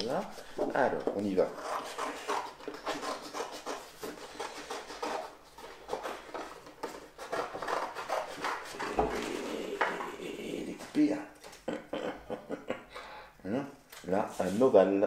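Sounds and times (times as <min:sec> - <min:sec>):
scissors cutting paper: 0:01.0 - 0:09.9.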